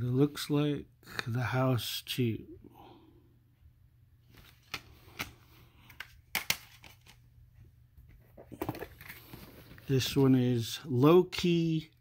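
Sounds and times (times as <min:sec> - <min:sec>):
plastic cd cases clicking: 0:04.4 - 0:07.2.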